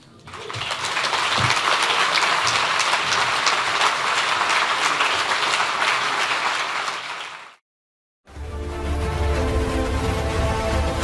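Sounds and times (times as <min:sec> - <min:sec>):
audience applauding: 0:00.3 - 0:07.6.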